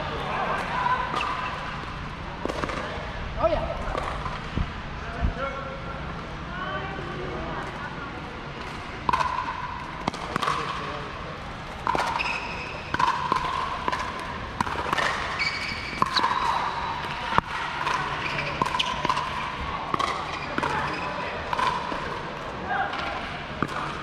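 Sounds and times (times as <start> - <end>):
paddles hitting plastic ball: 11.7 - 15.3.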